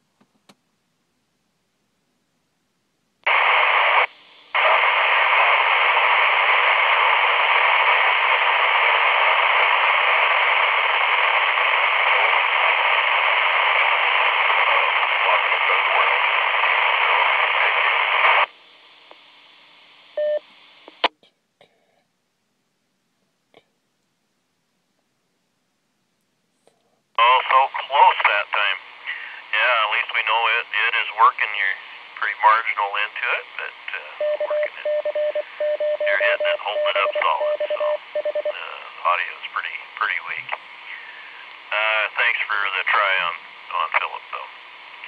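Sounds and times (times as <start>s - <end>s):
radio static hiss: 3.2s - 21.1s, 27.2s - 45.0s
short radio beep: 34.0s - 38.8s.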